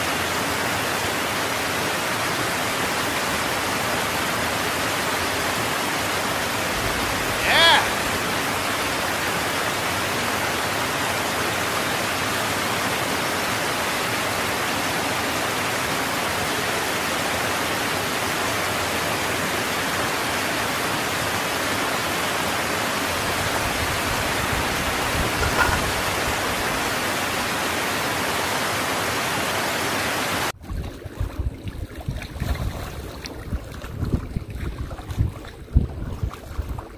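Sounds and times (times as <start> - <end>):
creek water running: 0.0 - 36.9
wind buffeting microphone: 23.1 - 27.0, 30.6 - 36.9.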